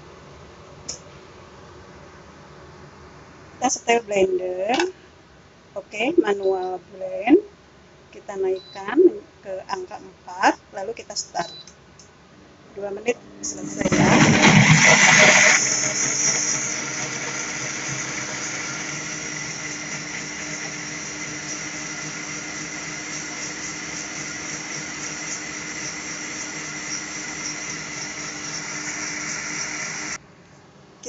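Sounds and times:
blender motor churning thick mix: 0:13.7 - 0:30.2.

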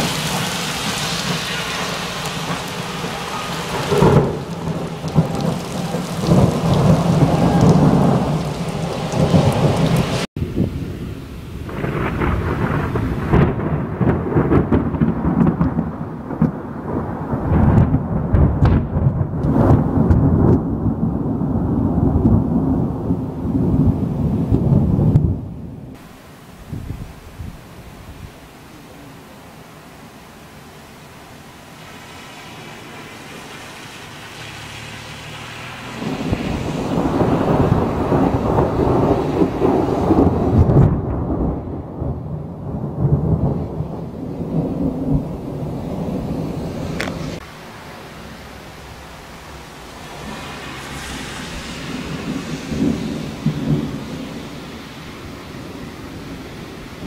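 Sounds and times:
thunder rolling: 0:00.0 - 0:26.0, 0:35.4 - 0:47.4, 0:49.4 - 0:57.0
light hiss: 0:46.7 - 0:57.0.

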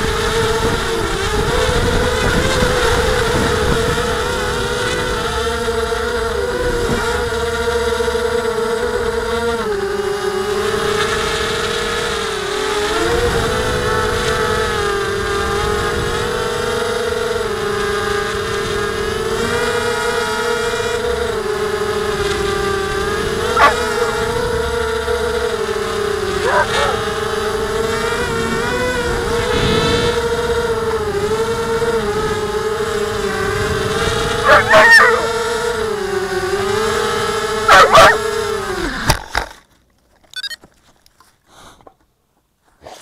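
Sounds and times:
quadcopter propellers whining: 0:00.0 - 0:39.5, 0:40.3 - 0:40.6
dog barking: 0:23.5 - 0:24.4, 0:26.4 - 0:27.1, 0:34.4 - 0:35.5, 0:37.7 - 0:38.3.

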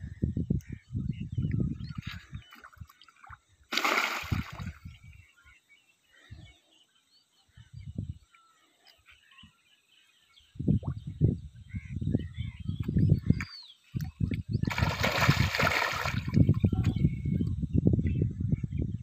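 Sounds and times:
small water sloshes: 0:02.0 - 0:04.8, 0:14.0 - 0:16.9
water splash: 0:03.7 - 0:04.8, 0:14.6 - 0:16.4.

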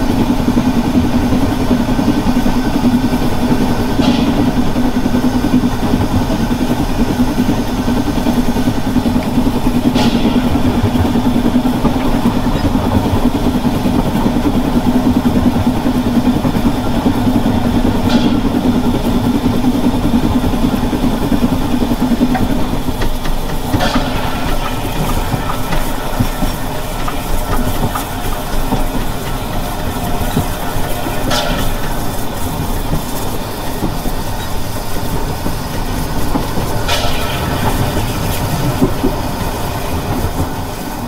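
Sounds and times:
steam train running: 0:00.0 - 0:41.0.

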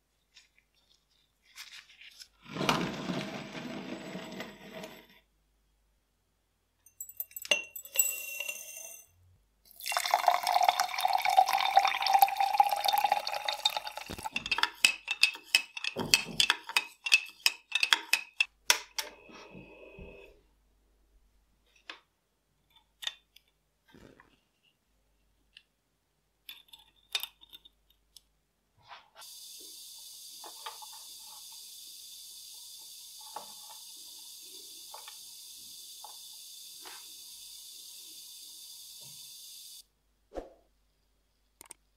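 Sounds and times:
fizzing hiss of bubbles: 0:09.7 - 0:14.3
water pouring into glass jar: 0:09.7 - 0:14.6.

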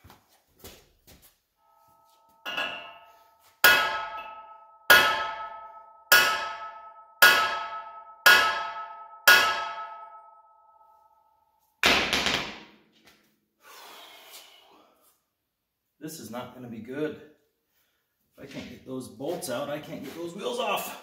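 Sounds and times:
hammer clanging on steel: 0:02.4 - 0:10.2.

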